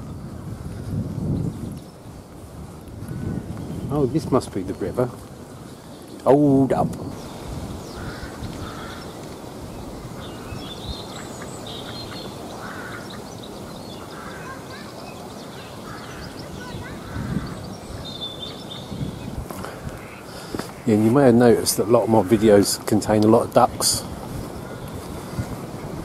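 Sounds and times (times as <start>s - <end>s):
ducks quacking quietly: 8.0s - 9.2s, 10.1s - 18.7s, 19.5s - 23.0s.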